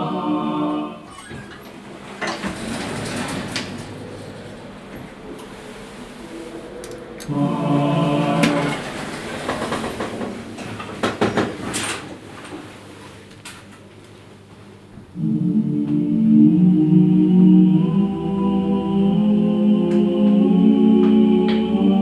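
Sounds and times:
voices holding choral chord: 0.0 - 1.1, 2.8 - 9.8, 15.1 - 22.0
lift clicks and rattles: 1.1 - 5.6, 8.4 - 12.6.

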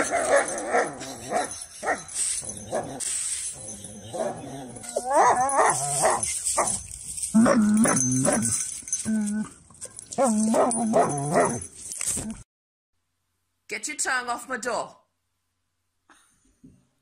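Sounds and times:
dog whining and barking: 3.6 - 6.8, 7.4 - 11.7.

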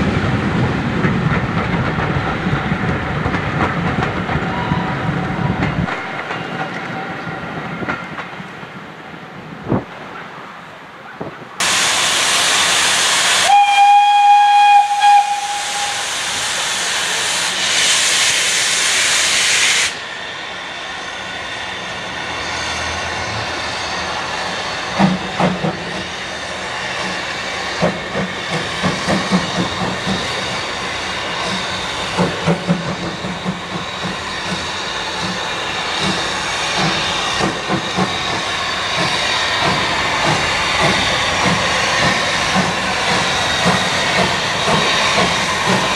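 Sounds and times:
quieter steady steam hiss: 8.4 - 45.9
steam locomotive whistle: 11.6 - 20.0
loud steam hiss: 11.6 - 45.9.

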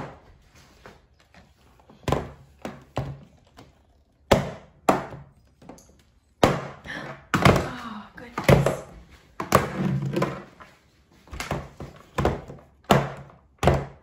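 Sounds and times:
plastic toys knocking on a table: 11.4 - 14.0.

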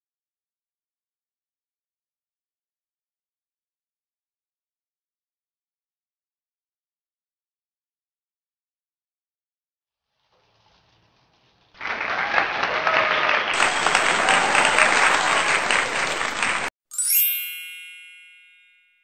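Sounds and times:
crowd clapping: 11.8 - 16.7
bright chime: 16.9 - 19.0.

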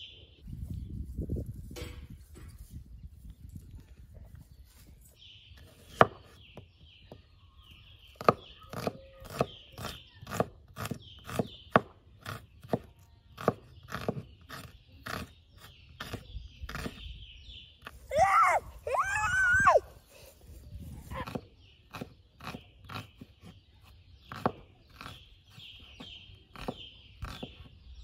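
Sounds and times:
knife chopping on wooden board: 8.2 - 15.3, 21.2 - 23.5, 24.3 - 25.2, 26.0 - 27.7.

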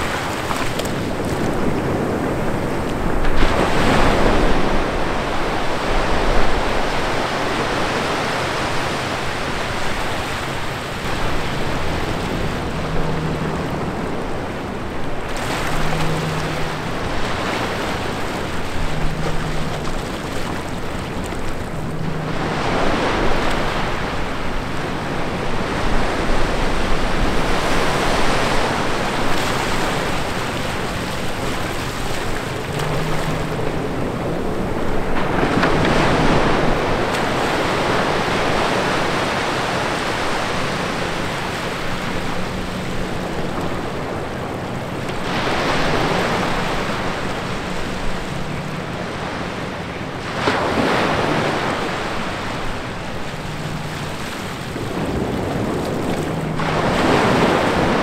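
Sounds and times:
waves washing up beach: 0.0 - 58.0.

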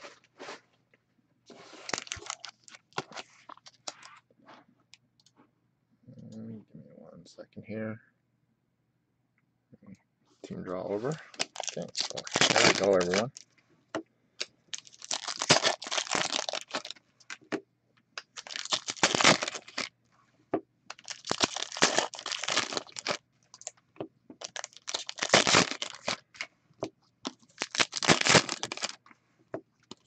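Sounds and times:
plastic wrapping crinkling and tearing: 1.6 - 4.1, 11.3 - 13.5, 14.4 - 17.6, 18.2 - 19.9, 20.9 - 23.8, 24.4 - 26.5, 27.2 - 29.0.

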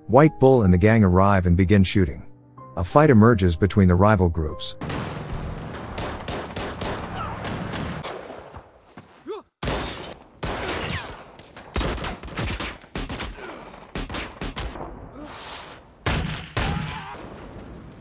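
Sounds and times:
gunfire in rapid volleys: 4.8 - 8.6, 9.6 - 14.9.

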